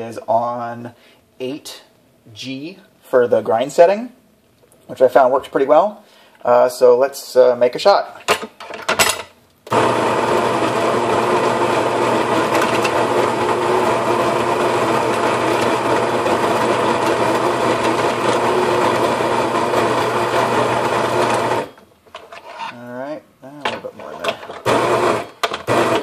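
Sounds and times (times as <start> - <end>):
coffee grinder grinding: 9.7 - 21.7, 24.1 - 26.0.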